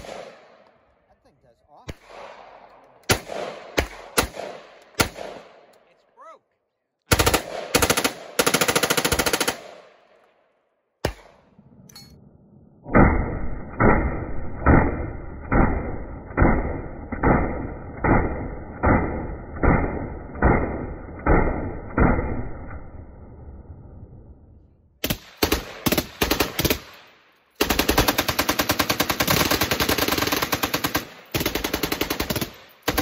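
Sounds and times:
rifle single shots: 0:01.8 - 0:05.8
rifle automatic bursts: 0:07.1 - 0:10.0, 0:25.0 - 0:33.0.

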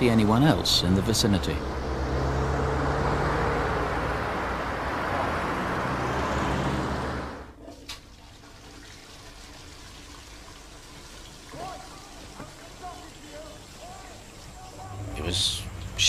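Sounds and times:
road traffic: 0:00.0 - 0:07.6, 0:12.8 - 0:16.0.

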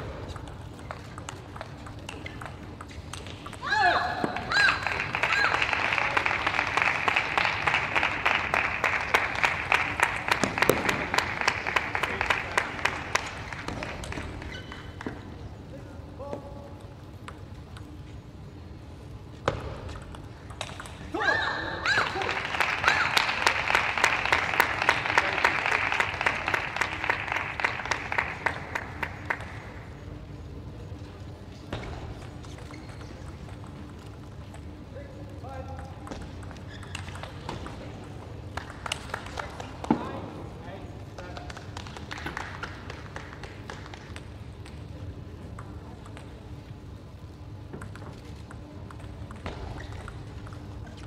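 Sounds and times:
steady low hum: 0:00.0 - 0:51.0
spectators applauding: 0:04.4 - 0:15.0, 0:21.8 - 0:29.8, 0:38.5 - 0:39.9, 0:41.4 - 0:44.2.

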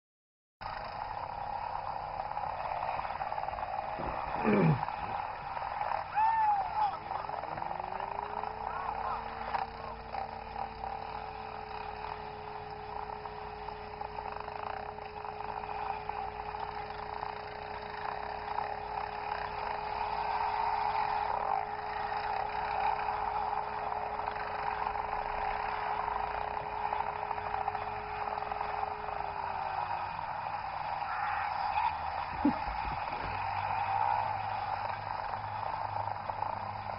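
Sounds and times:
atv engines running: 0:00.6 - 0:36.9
steady high whine: 0:00.6 - 0:36.9.

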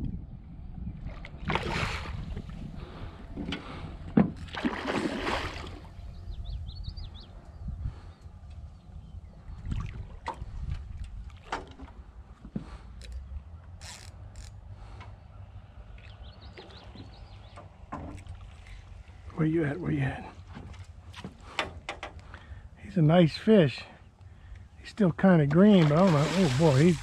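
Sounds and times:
wind rumble on microphone: 0:00.0 - 0:12.3
water splash: 0:01.2 - 0:02.3, 0:04.5 - 0:05.9, 0:25.6 - 0:27.0.

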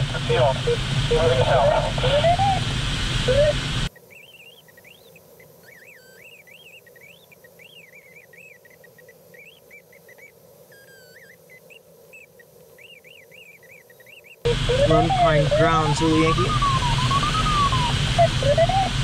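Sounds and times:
warbling electronic tone: 0:00.0 - 0:03.7, 0:14.5 - 0:19.0
airflow hiss: 0:00.0 - 0:03.9, 0:14.5 - 0:19.0.

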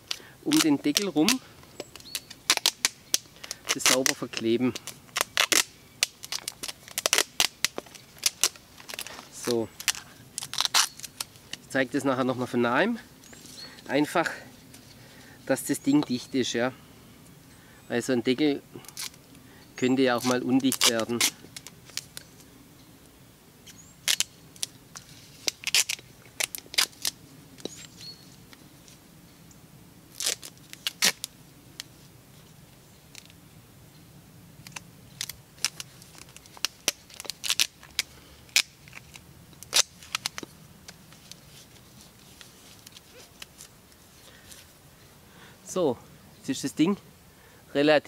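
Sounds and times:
duct tape ripping off roll: 0:00.0 - 0:11.7, 0:18.8 - 0:19.2, 0:20.2 - 0:22.4, 0:23.6 - 0:28.0, 0:30.1 - 0:31.9, 0:34.6 - 0:43.7.

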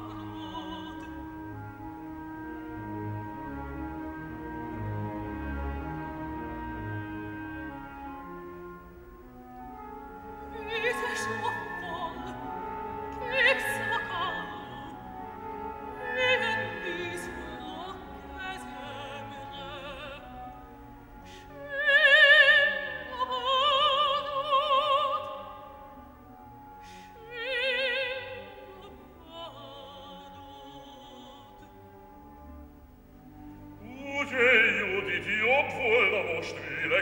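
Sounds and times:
operatic soprano singing: 0:00.0 - 0:03.8, 0:10.2 - 0:26.0, 0:26.6 - 0:32.3, 0:33.7 - 0:37.0
sparse orchestra: 0:00.0 - 0:37.0.

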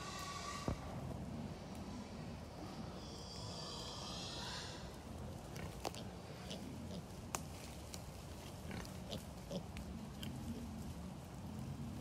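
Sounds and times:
piglets grunting: 0:00.0 - 0:07.1, 0:08.6 - 0:10.6
twigs crackling underfoot: 0:05.0 - 0:06.2, 0:06.9 - 0:11.7.

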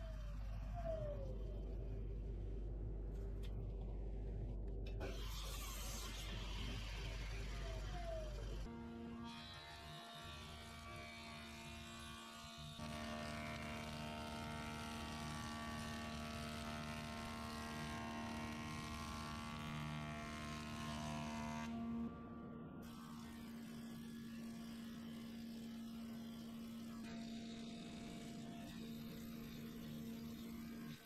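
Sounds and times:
jointer running with electric hum: 0:00.0 - 0:31.0
cutterhead planing wood: 0:08.7 - 0:21.9.

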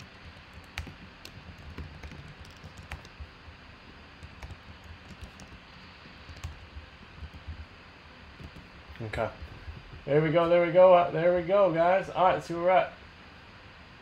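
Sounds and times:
computer keyboard clicks: 0:00.0 - 0:03.3, 0:04.2 - 0:07.6, 0:08.4 - 0:09.0.

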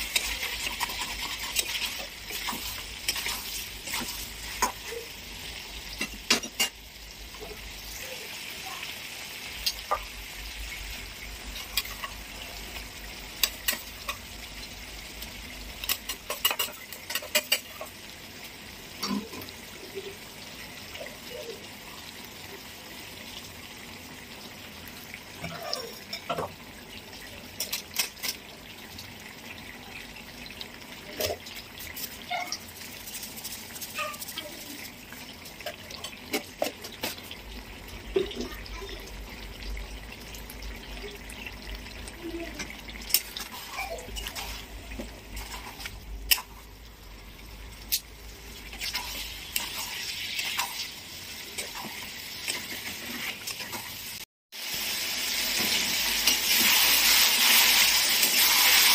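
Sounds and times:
food cooking hiss: 0:00.0 - 0:26.1, 0:30.7 - 0:40.2, 0:41.0 - 0:58.9
metal spoon clinking on pan: 0:15.8 - 0:17.9.

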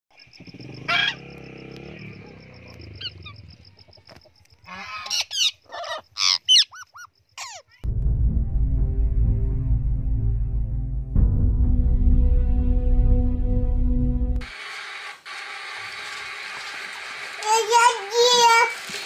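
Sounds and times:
parrots squawking: 0:00.9 - 0:01.2, 0:04.7 - 0:07.8.

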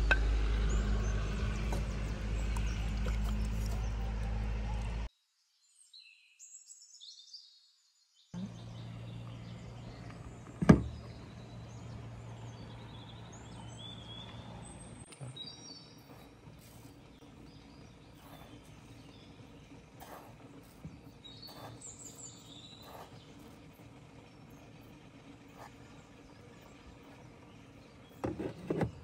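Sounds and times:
small birds chirping: 0:00.0 - 0:29.0
steady low hum: 0:08.4 - 0:29.0.

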